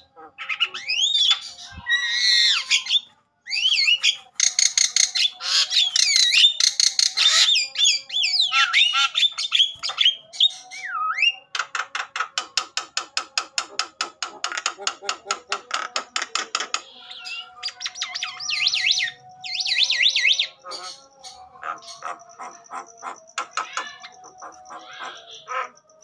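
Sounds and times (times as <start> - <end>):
bird whistling and squawking: 0.0 - 11.6, 16.7 - 25.8.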